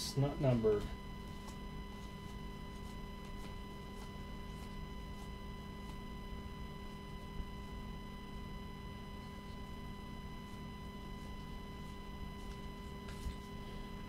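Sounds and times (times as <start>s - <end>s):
steady electrical hum: 0.0s - 14.0s
cards sliding with soft ticks: 1.3s - 6.0s, 10.4s - 13.9s.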